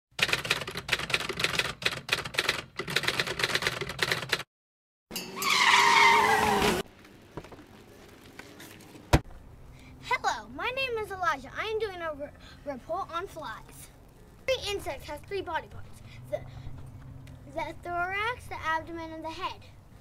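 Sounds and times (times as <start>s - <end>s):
typewriter keys clattering: 0.2s - 4.4s
falling screech with hiss: 5.4s - 6.8s.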